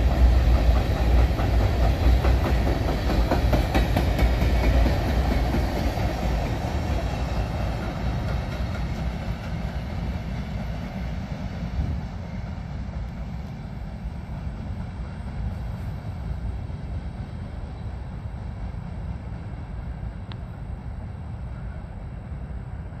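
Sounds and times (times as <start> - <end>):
train wheels rumbling on rails: 0.0 - 23.0.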